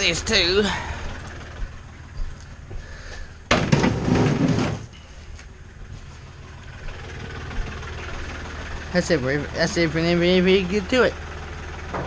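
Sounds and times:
steady low hum: 0:00.0 - 0:11.2
object scraping while dragged: 0:03.8 - 0:04.9.

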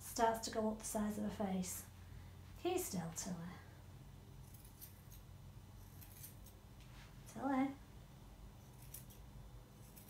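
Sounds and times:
scissors snipping fur: 0:04.4 - 0:06.6, 0:08.6 - 0:10.0.

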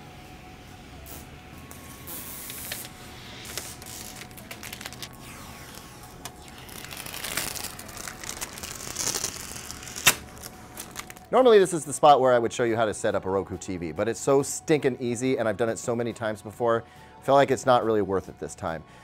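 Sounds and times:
plastic film peeling: 0:02.0 - 0:11.3.

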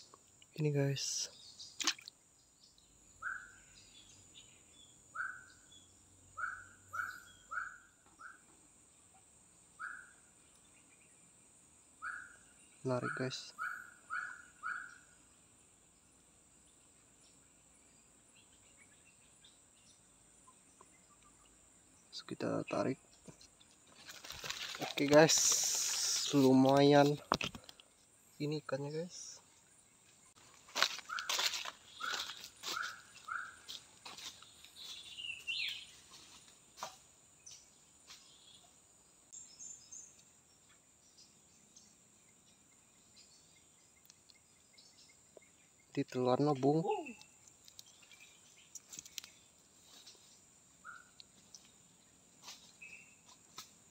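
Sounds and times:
faint bird chirps: 0:00.0 - 0:16.0, 0:16.6 - 0:53.7
high insect drone: 0:02.4 - 0:53.9
footsteps on dry leaves: 0:23.9 - 0:27.2, 0:30.4 - 0:36.6.

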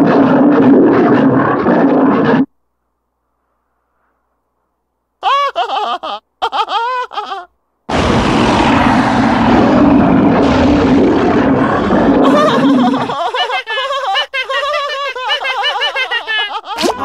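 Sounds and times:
cartoon monster roar: 0:07.9 - 0:13.4
cartoon character warbling: 0:16.8 - 0:17.0.

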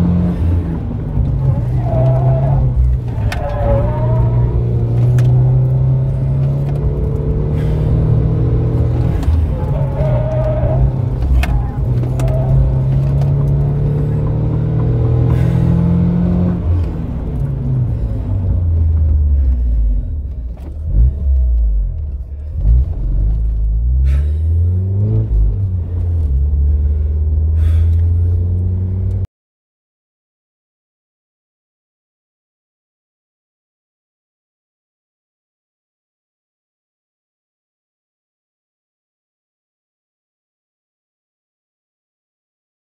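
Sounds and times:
car engine from inside cabin: 0:00.0 - 0:29.3.

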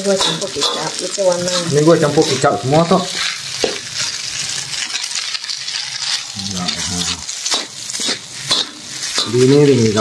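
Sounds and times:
metal clinking on wok: 0:00.0 - 0:02.0
rice sizzling in a wok: 0:00.0 - 0:10.0
metal ladle scraping wok: 0:05.6 - 0:10.0.

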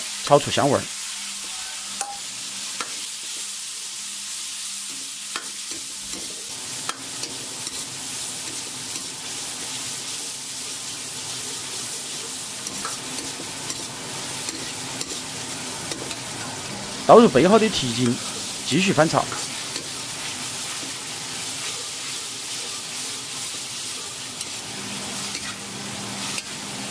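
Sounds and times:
vegetables sizzling in hot oil: 0:00.0 - 0:26.9
ladle scraping and clicking on wok: 0:04.9 - 0:09.1, 0:12.6 - 0:16.3, 0:25.2 - 0:25.6, 0:26.2 - 0:26.6.

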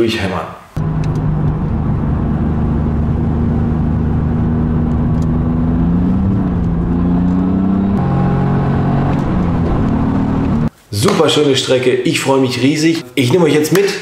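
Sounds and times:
car engine accelerating: 0:00.8 - 0:10.7.

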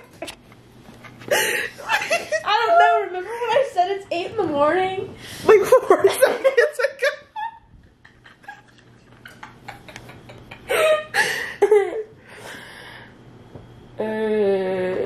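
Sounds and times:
woman laughing: 0:01.0 - 0:03.6, 0:05.5 - 0:12.2.

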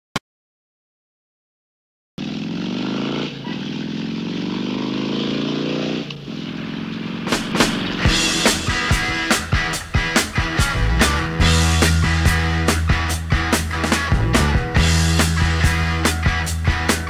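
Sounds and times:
motorcycle engine accelerating: 0:02.2 - 0:17.0
rock music with heavy drums: 0:07.1 - 0:17.0.

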